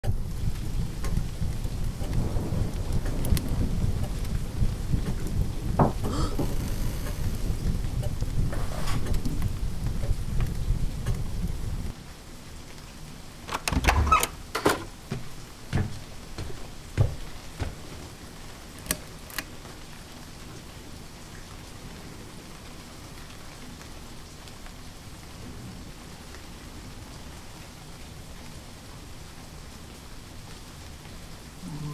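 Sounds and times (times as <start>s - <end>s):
knocks and creaks: 0.0s - 2.2s, 2.9s - 11.4s, 13.5s - 19.6s
low rumble: 0.0s - 12.0s
steady rain-like hiss: 0.0s - 31.9s
sharp clicks: 13.5s - 14.9s
thumps: 13.5s - 18.1s.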